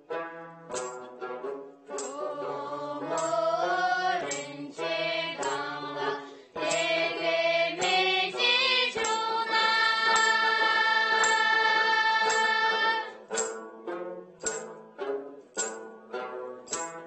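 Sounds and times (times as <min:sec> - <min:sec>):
plucked lutes: 0:00.0 - 0:17.0
girls singing together: 0:02.0 - 0:13.2.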